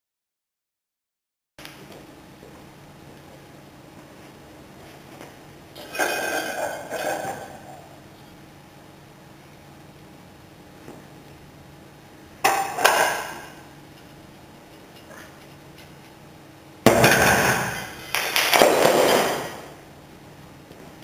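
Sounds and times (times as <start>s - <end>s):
handle dropping to floor: 18.4s - 19.7s.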